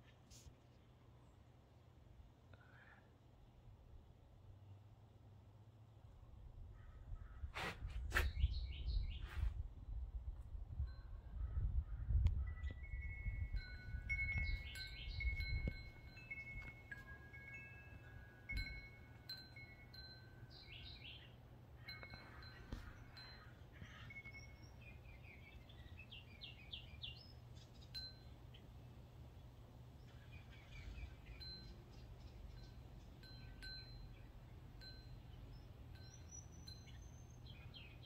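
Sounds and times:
bird chirping: 8.2 - 9.4, 11.6 - 18.2, 19.3 - 38.0
wind chime ringing: 12.8 - 21.1, 21.9 - 24.8, 31.2 - 37.8.

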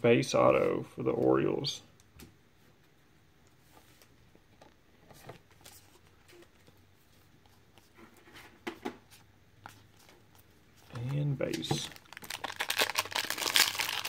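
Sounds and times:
cards rustling and ticking: 9.6 - 14.0.

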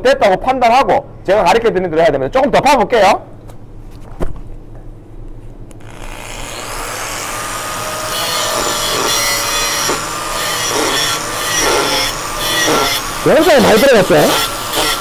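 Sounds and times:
angle grinder grinding steel: 5.8 - 15.0.

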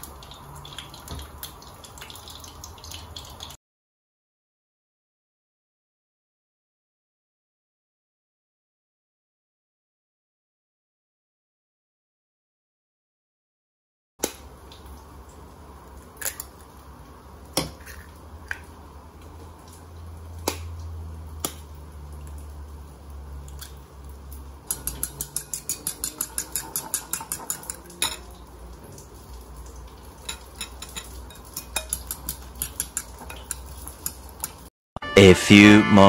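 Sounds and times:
metal utensil beating against bowl: 24.7 - 28.3, 30.3 - 34.6.

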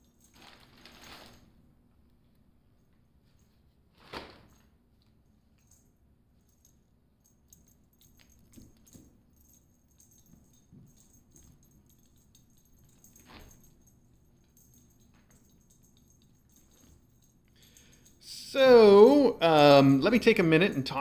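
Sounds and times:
kittens rattling toys: 5.6 - 18.4.

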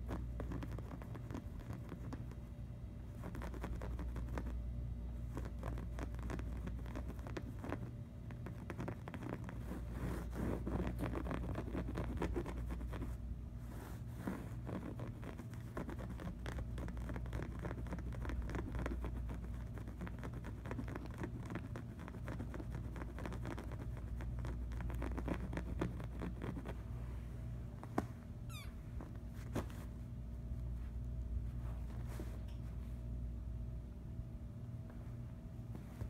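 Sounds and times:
scratching on fabric cushion: 0.0 - 33.2, 34.9 - 36.0
steady low hum: 0.0 - 36.0
brief high squeak: 28.5 - 28.8.

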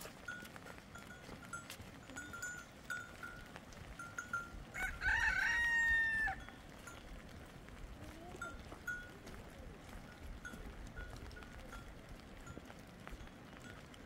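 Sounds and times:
rooster crowing: 4.8 - 6.4.

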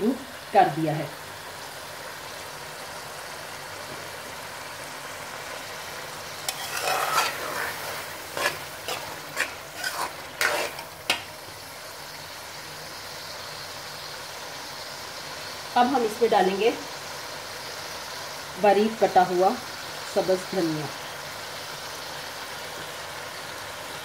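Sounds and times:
food sizzling in a pot: 0.0 - 24.0
spoon scraping a pot: 6.4 - 11.3.

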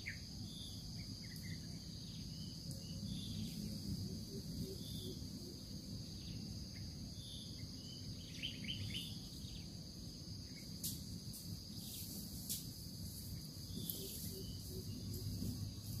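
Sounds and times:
small bird chirping: 0.0 - 9.8, 13.2 - 16.0
insects droning: 0.0 - 16.0
low outdoor rumble: 0.2 - 16.0.

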